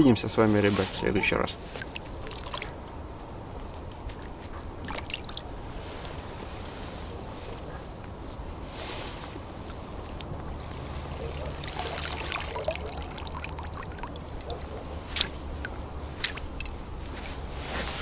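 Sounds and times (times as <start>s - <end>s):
water dripping off net: 11.4s - 16.8s.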